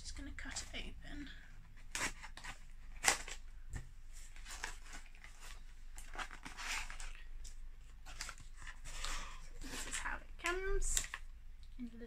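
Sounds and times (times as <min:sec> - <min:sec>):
cardboard rustling: 0:01.7 - 0:11.2.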